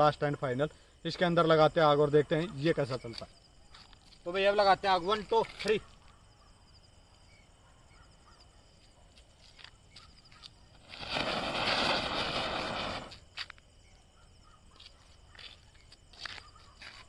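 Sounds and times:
firework spraying hiss: 0:10.7 - 0:13.3.

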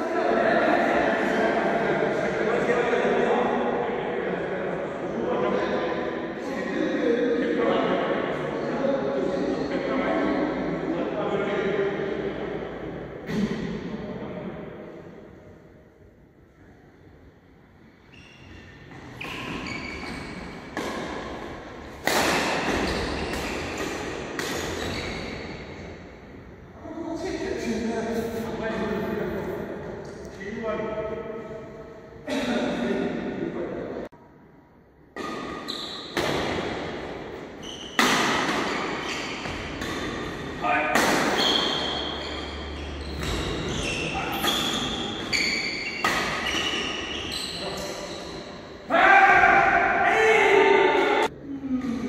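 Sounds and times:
shoes squeaking on court: 0:18.1 - 0:21.1, 0:22.5 - 0:25.7, 0:37.6 - 0:40.5, 0:41.3 - 0:48.6
racket hitting shuttlecock: 0:19.2 - 0:25.6, 0:35.1 - 0:42.5, 0:44.3 - 0:47.1.

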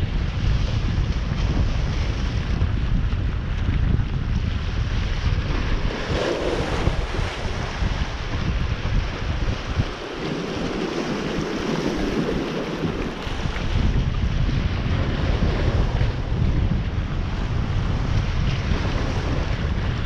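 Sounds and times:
wind buffeting microphone: 0:00.0 - 0:20.0
water rushing: 0:04.8 - 0:15.0.

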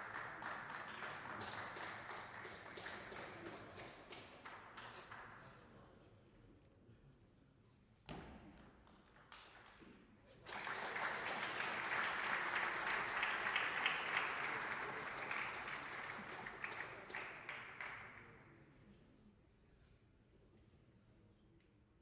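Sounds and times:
spectators clapping: 0:00.0 - 0:05.5, 0:10.4 - 0:18.4.

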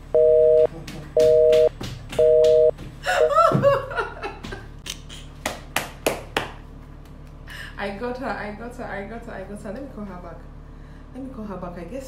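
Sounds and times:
woman giggling: 0:03.0 - 0:04.7.

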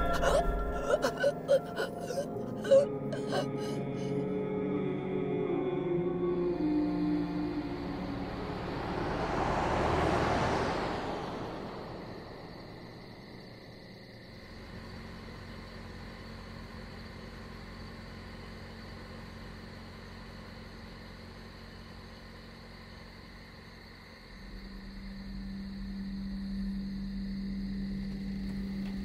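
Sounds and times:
car driving past: 0:06.2 - 0:15.2
car engine idling: 0:07.0 - 0:29.0.

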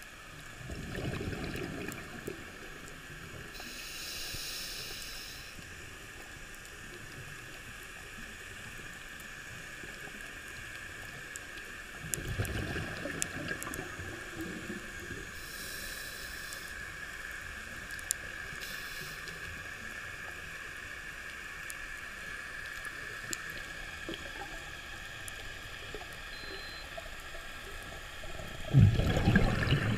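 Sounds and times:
muffled underwater hiss: 0:00.0 - 0:29.9
scuba bubbles gurgling: 0:00.4 - 0:03.6, 0:11.8 - 0:15.5, 0:26.9 - 0:29.9.

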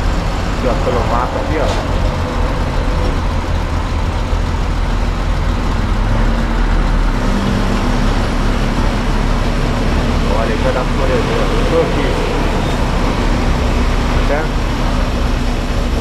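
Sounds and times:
bus engine drone: 0:00.0 - 0:16.0
road noise: 0:00.0 - 0:16.0.

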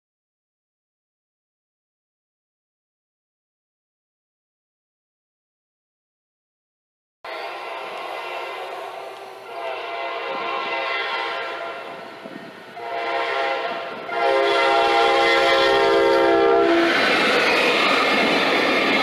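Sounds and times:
locomotive air horn blasts: 0:07.3 - 0:12.1, 0:12.8 - 0:17.0
rumble of locomotive engines: 0:07.3 - 0:19.0.

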